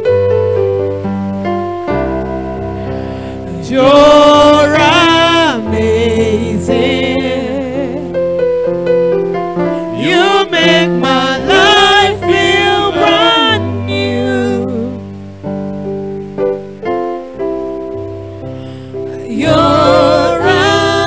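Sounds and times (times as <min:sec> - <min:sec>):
keyboard chords: 0:00.0 - 0:21.0
person singing: 0:03.4 - 0:08.2, 0:09.9 - 0:15.2, 0:19.1 - 0:21.0.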